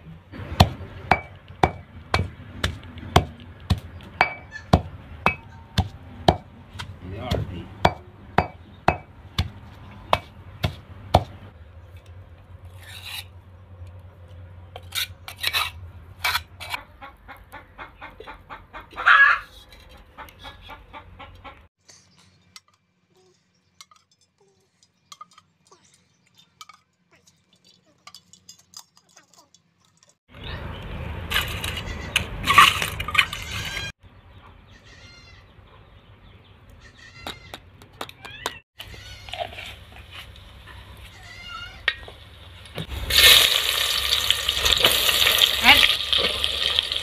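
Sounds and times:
stone pestle pounding in mortar: 0.6s - 11.4s
spoon scraping and clinking: 23.8s - 30.2s.

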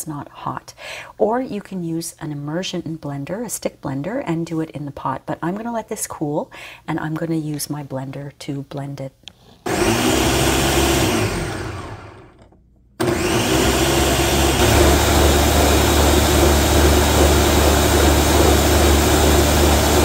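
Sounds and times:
blender motor running: 9.7s - 20.0s.

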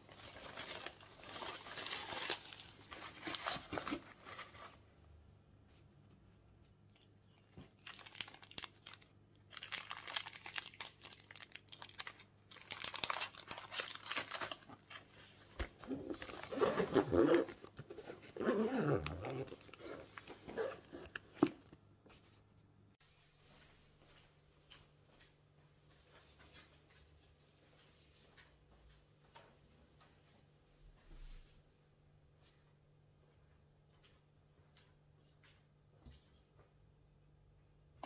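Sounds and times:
wrappers and bottles crinkling: 0.0s - 4.8s, 7.3s - 21.7s
bag zipper closing: 15.9s - 21.2s.

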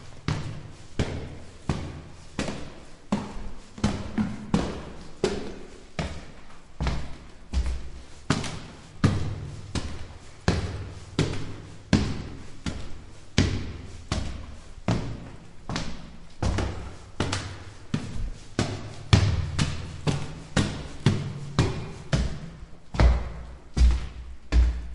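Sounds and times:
footsteps on stone stairs: 0.0s - 24.9s.

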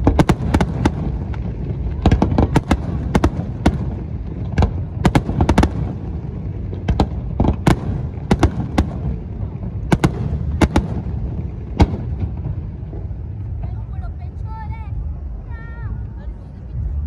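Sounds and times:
firework shells bursting: 0.0s - 13.2s
low rumble: 0.0s - 17.0s.

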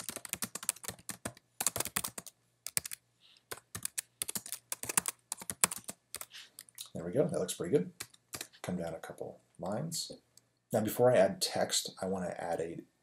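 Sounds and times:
typing on computer keyboard: 0.0s - 6.8s, 8.0s - 8.5s.

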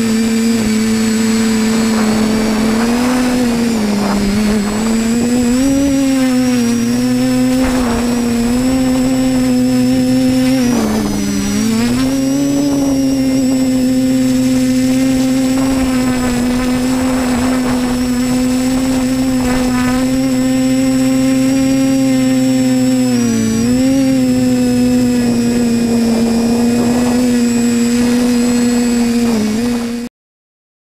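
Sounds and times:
quadcopter motors buzzing whine: 0.0s - 30.1s.

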